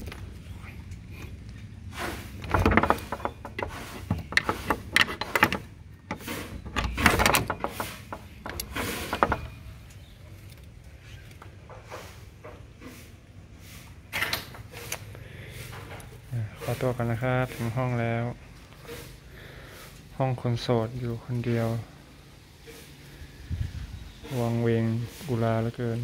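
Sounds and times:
wooden door opening: 2.2s - 10.4s.

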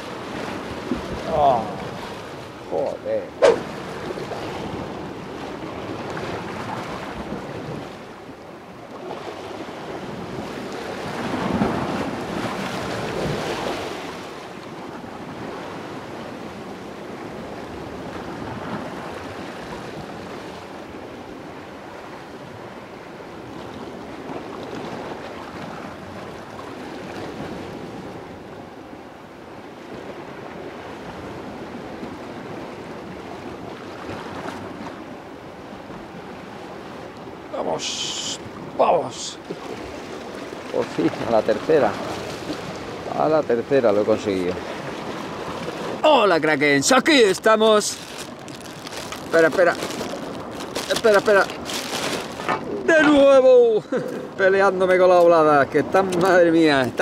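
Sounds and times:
waves washing against rocks: 0.0s - 8.3s, 9.0s - 21.4s, 35.8s - 53.8s.

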